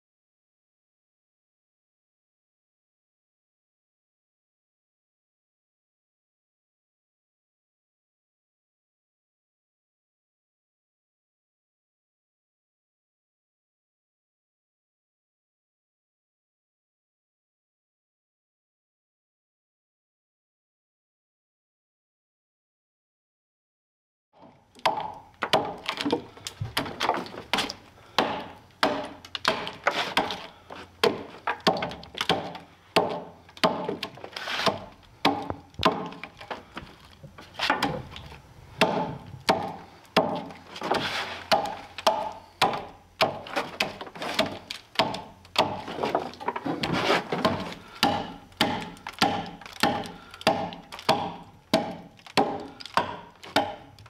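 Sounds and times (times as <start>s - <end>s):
wood splitting and cracking: 24.7s - 54.0s
axe chopping into a log: 24.8s - 36.3s, 38.8s - 53.9s.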